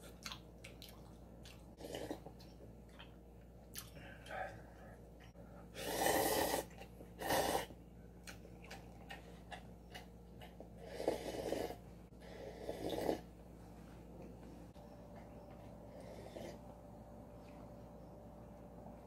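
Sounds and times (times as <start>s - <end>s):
slurping noodle broth: 5.8s - 7.7s, 10.8s - 13.3s.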